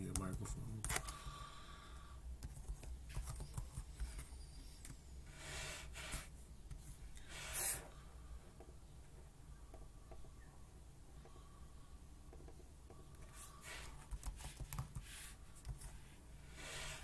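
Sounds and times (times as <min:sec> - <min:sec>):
keyboard and touchpad clicking: 0:00.0 - 0:01.3, 0:02.4 - 0:05.0.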